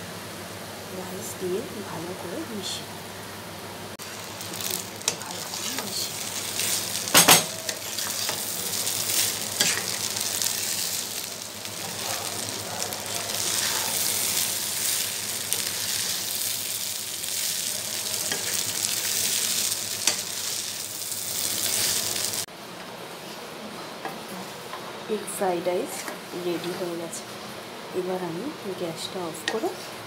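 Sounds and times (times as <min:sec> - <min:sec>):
rice sizzling in a pan: 0:03.8 - 0:22.5.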